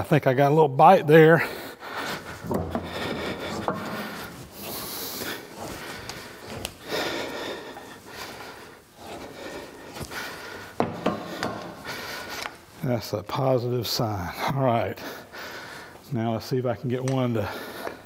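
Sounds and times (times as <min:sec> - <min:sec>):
screw rubbing and scraping: 0:02.4 - 0:05.7.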